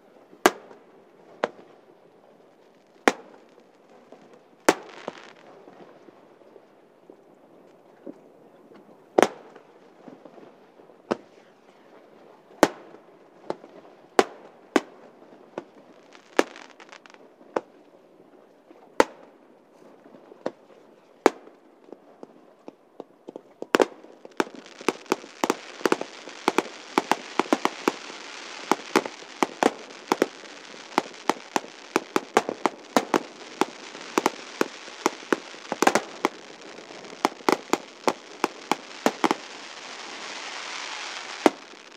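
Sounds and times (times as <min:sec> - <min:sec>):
steady hiss: 0:02.5 - 0:05.5, 0:15.6 - 0:17.2, 0:24.0 - 0:41.9
fireworks bursting bangs: 0:04.6 - 0:05.5, 0:12.6 - 0:17.2, 0:23.6 - 0:41.9.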